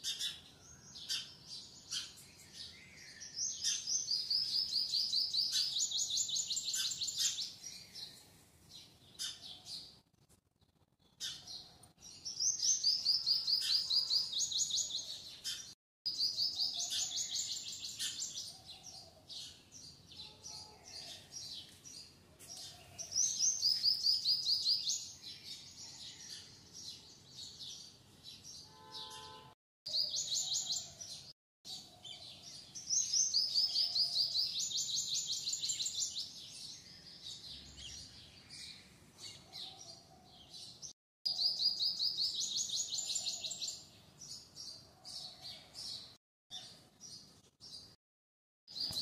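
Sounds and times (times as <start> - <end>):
small birds chirping: 0.0 - 48.0, 48.7 - 49.0.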